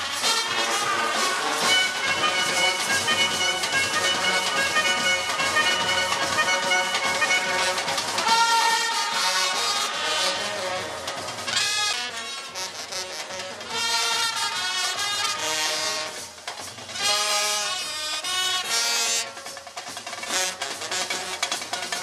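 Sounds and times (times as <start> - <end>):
trumpets and saxophone melody: 0.0 - 22.0.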